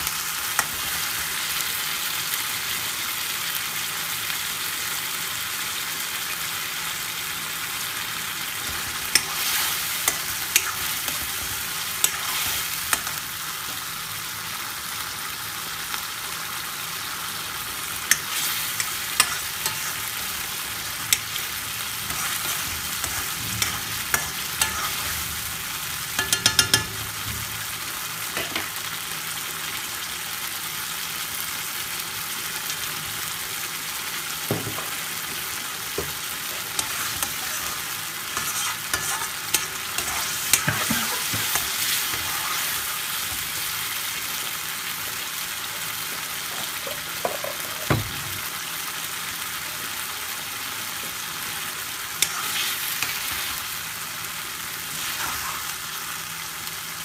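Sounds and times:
curry sizzling in pan: 0.0s - 57.0s
spoon stirring: 18.1s - 20.0s, 38.4s - 42.4s
spoon knocking against pan: 26.2s - 27.0s.

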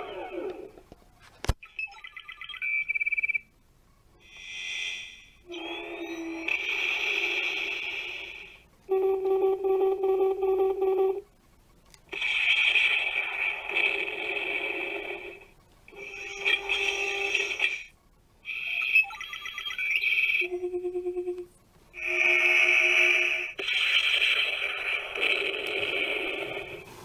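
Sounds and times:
toy electronic sound effects: 0.0s - 0.7s, 5.5s - 11.2s, 12.1s - 21.4s.

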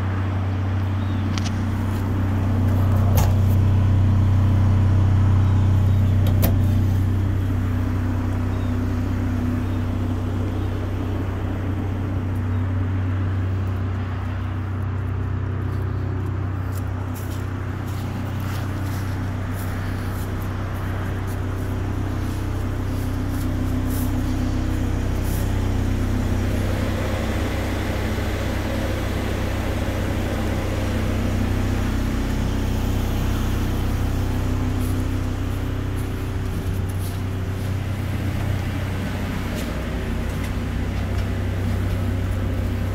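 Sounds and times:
engine droning steadily: 0.0s - 42.9s.

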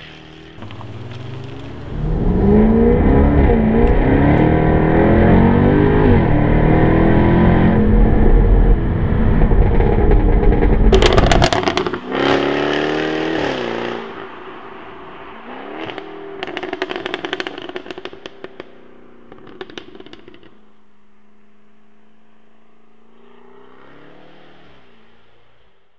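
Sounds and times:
exhaust pops and crackles: 0.0s - 3.1s, 9.3s - 12.4s, 15.8s - 20.6s
car engine pulling hard: 0.0s - 20.6s.

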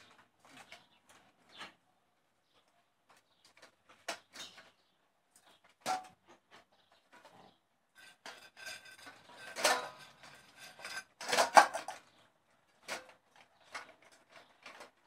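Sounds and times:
metal food bowls clinking: 5.8s - 6.2s, 8.0s - 12.1s.

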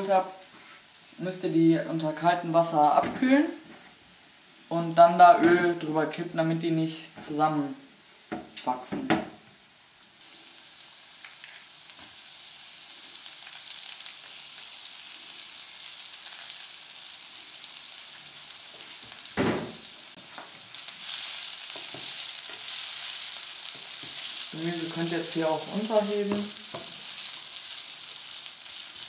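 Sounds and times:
food sizzling in hot oil: 0.0s - 29.0s
short thump: 19.4s - 19.8s
wooden spatula stirring: 20.4s - 27.6s.

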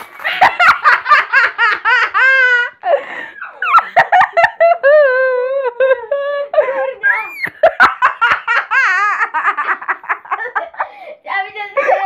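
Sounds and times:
boy laughing in high squeals: 4.8s - 7.9s.

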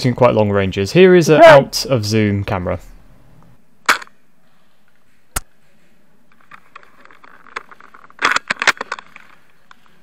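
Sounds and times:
rustling: 4.0s - 10.0s
rifle handling clicks and knocks: 5.0s - 10.0s.

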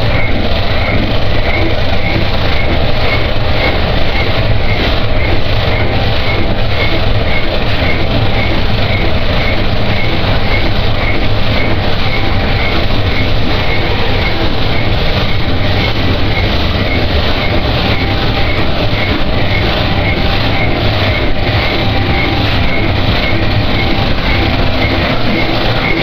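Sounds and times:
harsh noise music rumble and hiss: 0.0s - 26.0s
short high blips: 0.0s - 26.0s.

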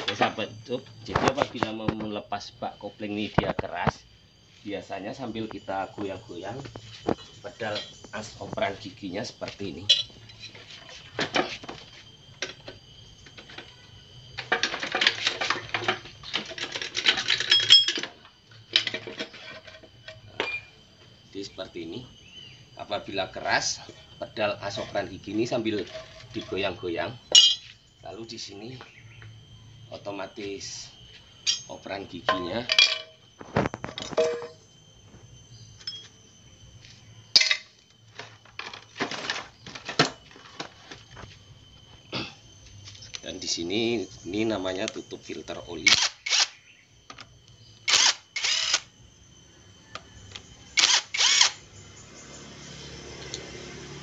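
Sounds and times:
metal tools clinking: 9.9s - 10.7s, 14.4s - 18.2s, 27.3s - 27.7s, 31.4s - 33.2s, 35.8s - 36.1s.

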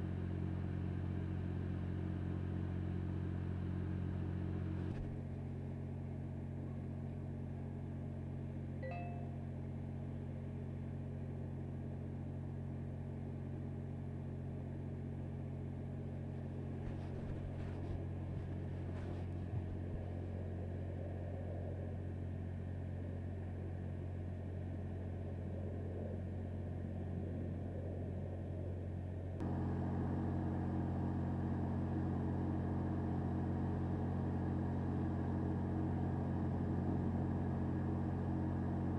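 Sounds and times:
engine idling drone: 14.8s - 38.9s.

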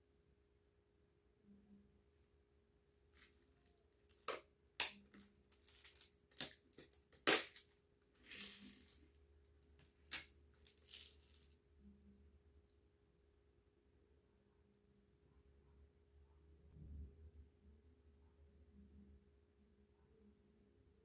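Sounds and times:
crinkly plastic rustles: 3.2s - 11.7s.

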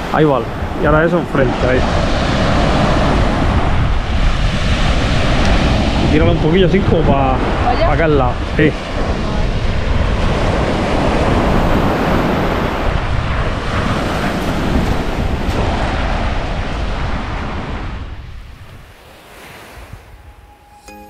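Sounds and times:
sea waves washing onto beach: 0.0s - 20.4s
wind buffeting microphone: 0.0s - 20.6s.

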